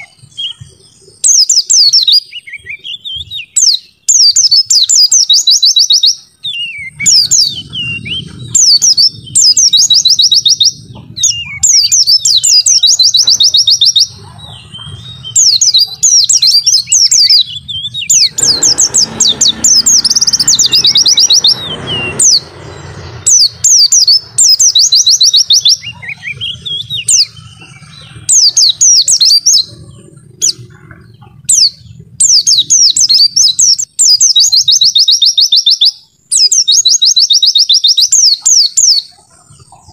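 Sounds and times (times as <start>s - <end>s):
bird singing high rapid trills: 0.0s - 39.9s.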